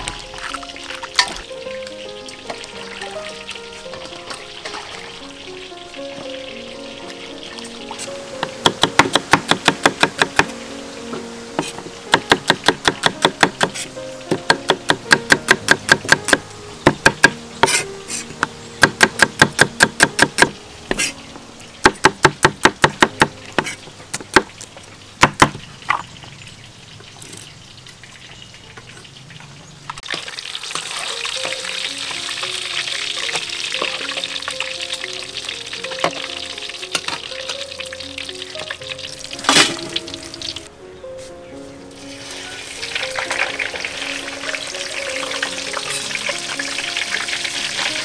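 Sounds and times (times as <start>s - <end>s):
frying sizzle: 0.0s - 48.0s
cleaver chopping on wooden block: 8.6s - 10.5s, 11.6s - 17.8s, 18.8s - 21.1s, 21.9s - 24.5s, 25.2s - 25.6s.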